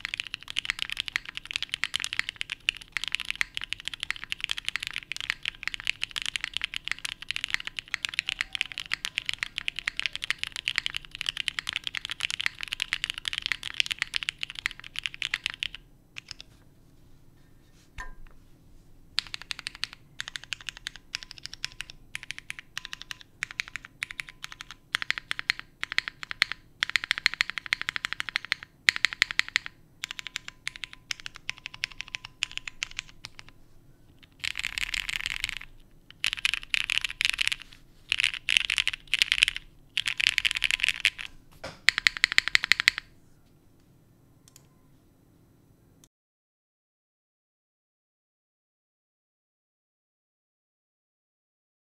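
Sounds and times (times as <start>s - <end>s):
mechanical keyboard typing: 0.0s - 16.5s, 19.2s - 43.1s.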